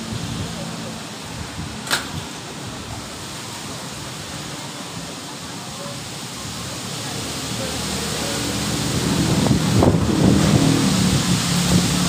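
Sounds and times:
storm wind through trees: 0.0 - 12.0
sharp click: 1.8 - 2.2.

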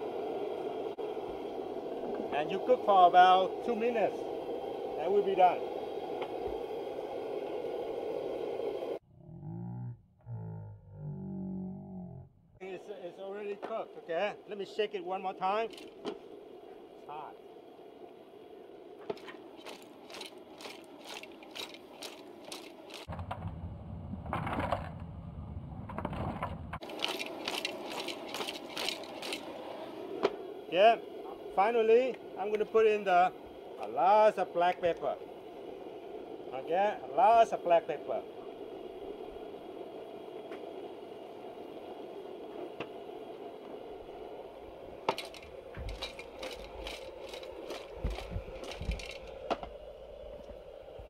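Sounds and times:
propane burner rushing: 0.0 - 9.0, 12.7 - 51.0
low steady rumble: 0.0 - 51.0
shells rattling in a pot: 15.7 - 16.0, 19.2 - 23.1, 26.8 - 29.5, 45.1 - 49.4.

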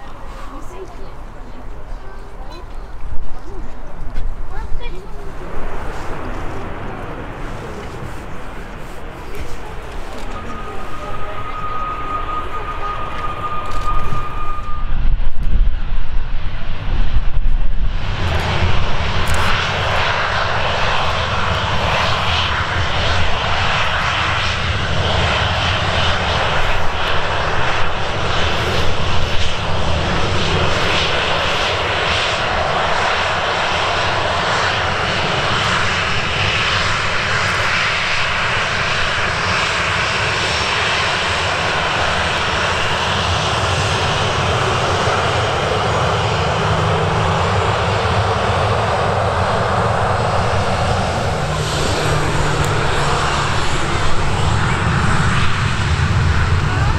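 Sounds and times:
jet engine roar and whine: 0.0 - 56.9.

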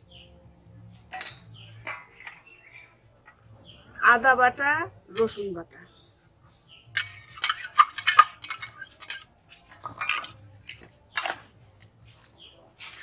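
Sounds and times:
steel utensils clinking in bowl: 6.9 - 11.4.

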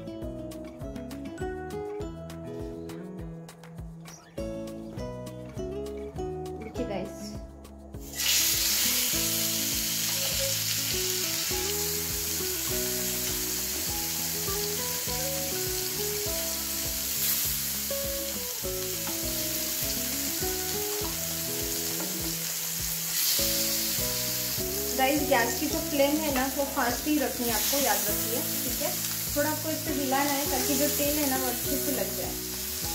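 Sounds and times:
chicken frying in hot oil: 8.0 - 32.9.

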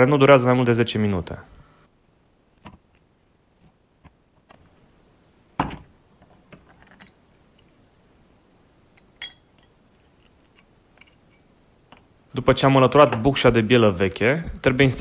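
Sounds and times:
ringing metallic clink: 9.2 - 9.7.

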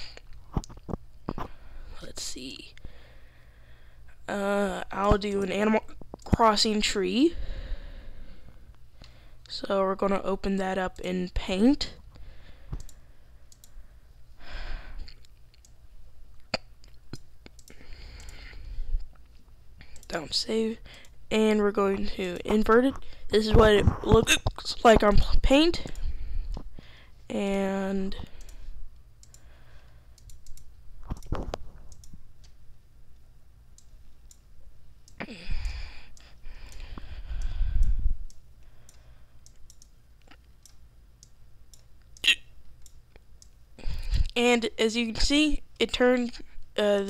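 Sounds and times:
person breathing: 2.8 - 4.2, 7.3 - 9.4, 12.1 - 15.2, 17.7 - 19.0, 25.9 - 27.3, 29.4 - 30.2, 35.2 - 39.4
computer mouse clicks: 12.7 - 13.8, 16.5 - 20.2, 28.2 - 32.6, 35.0 - 44.4.

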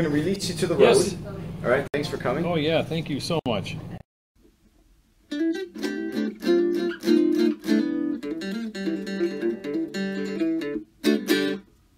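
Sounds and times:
guitar strumming chords: 5.3 - 11.7.

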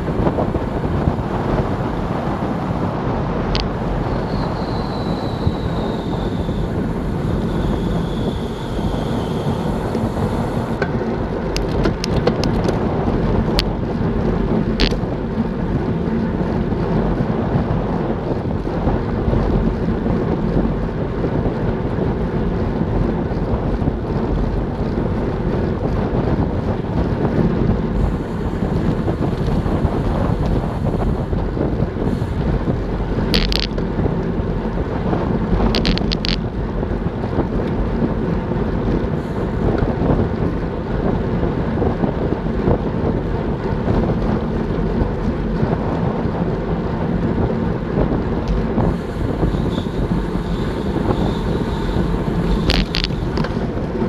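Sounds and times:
wind rushing over microphone: 0.0 - 54.0.

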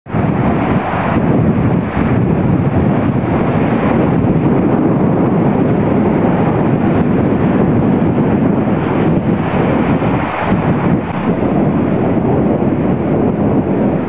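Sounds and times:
wind buffeting microphone: 0.1 - 14.0.

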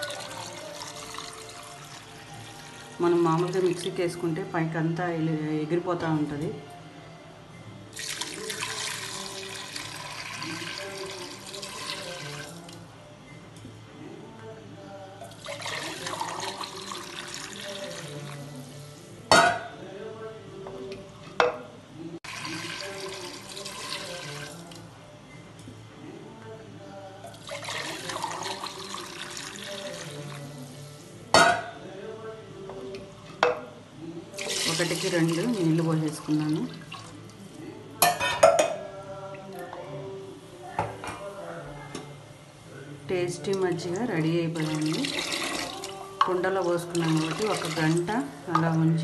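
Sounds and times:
buttermilk splashing pour: 8.0 - 12.6, 27.4 - 30.4, 34.4 - 37.1.

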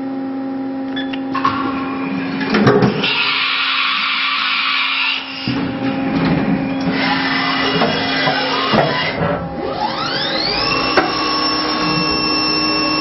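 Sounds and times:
milling machine motor hum: 0.6 - 13.0
machine hissing: 1.5 - 5.8.

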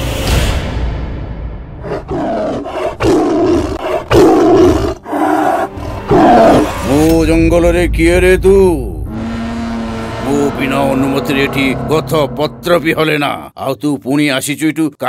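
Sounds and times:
tiger roaring: 1.8 - 7.0.

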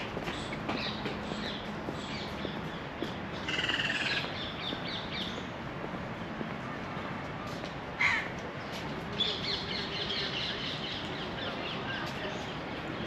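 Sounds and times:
outdoor background noise: 0.0 - 13.0
crow cawing: 3.5 - 4.2, 8.0 - 8.3.

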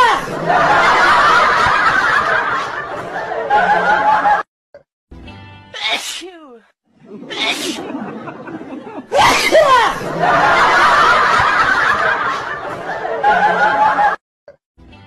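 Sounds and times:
people laughing and squealing: 0.0 - 4.4, 7.0 - 14.2.

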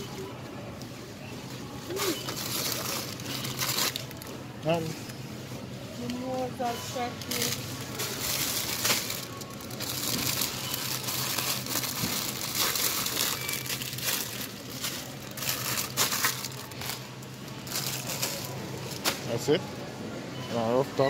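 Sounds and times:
plastic bags crinkling: 1.9 - 4.8, 7.0 - 19.3.

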